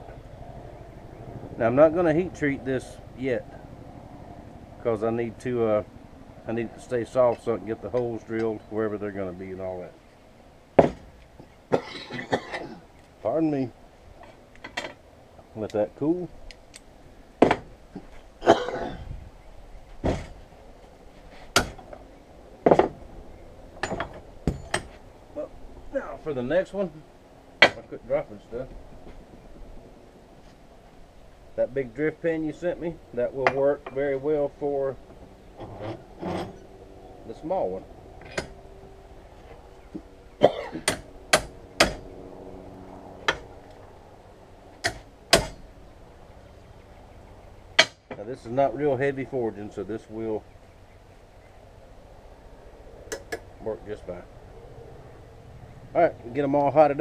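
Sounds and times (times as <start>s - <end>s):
man coughing: 11.8s - 12.9s, 18.4s - 19.1s, 40.4s - 40.9s.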